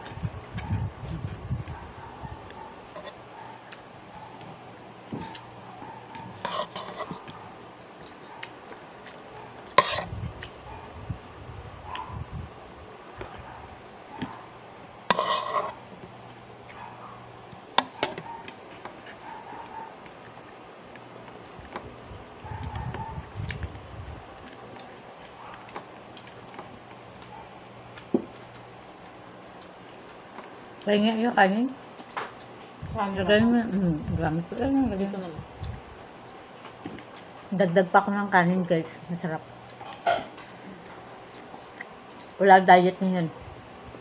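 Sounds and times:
faint steady hum: 0.0s - 44.0s
person chewing: 8.0s - 10.6s, 23.2s - 30.9s, 39.6s - 42.4s.

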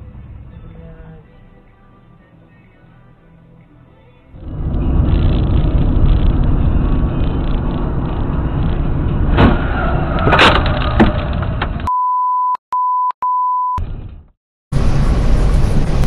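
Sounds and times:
car road and engine noise: 0.0s - 2.2s, 3.7s - 11.9s, 13.8s - 16.0s
high censor beep: 11.9s - 13.8s.

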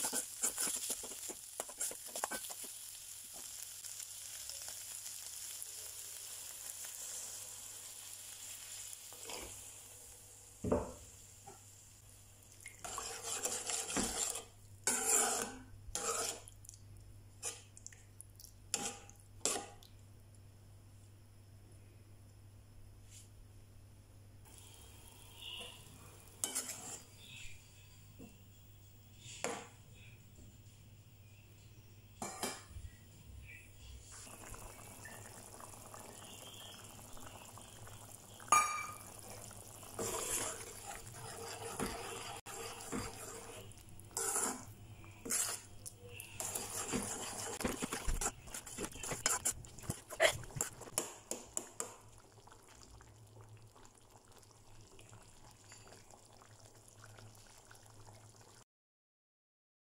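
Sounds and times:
gravy simmering and bubbling: 10.7s - 20.2s, 34.0s - 58.6s.

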